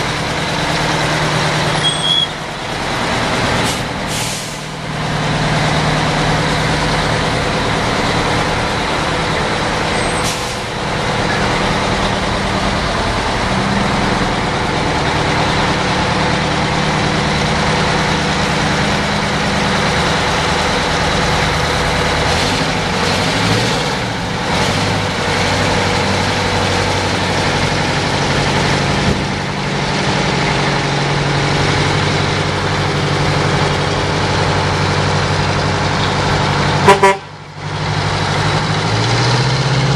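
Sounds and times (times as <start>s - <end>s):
diesel truck engine at low revs: 0.0s - 39.9s
air brake hisses: 3.6s - 4.8s, 10.1s - 10.7s.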